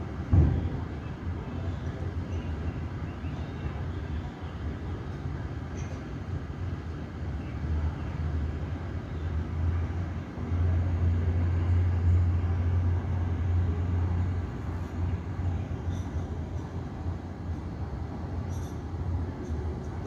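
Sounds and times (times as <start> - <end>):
ground vehicles: 0.0 - 20.0
taxiing aircraft rumble: 0.0 - 20.0.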